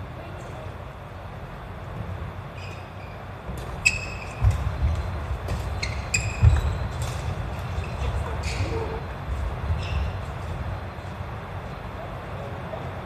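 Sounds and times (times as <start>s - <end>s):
sneaker squeaks: 2.0s - 11.2s
footfall thuds on wooden floor: 4.4s - 6.9s.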